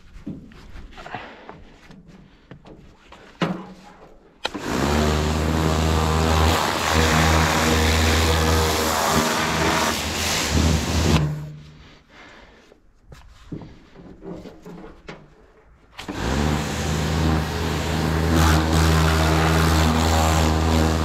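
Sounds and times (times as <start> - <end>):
pressure washer running: 4.4 - 11.5, 16.0 - 21.0.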